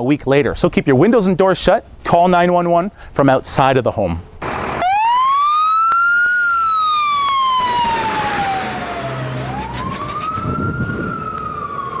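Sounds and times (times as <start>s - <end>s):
fire engine siren wailing: 4.4s - 12.0s.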